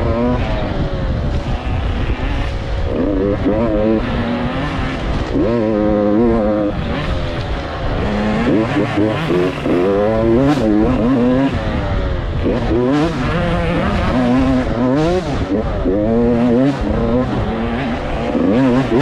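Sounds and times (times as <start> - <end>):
motocross bike engine revving: 0.0 - 19.0.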